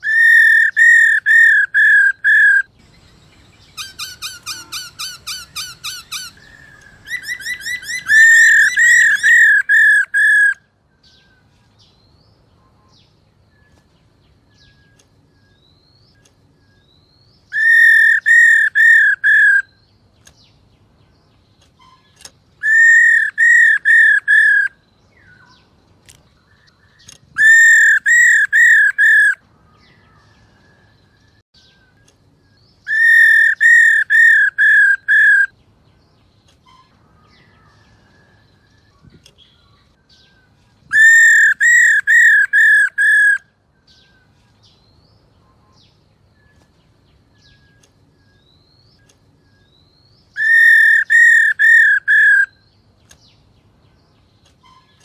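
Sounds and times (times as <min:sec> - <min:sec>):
laughingthrush call: 0:03.7 - 0:10.6.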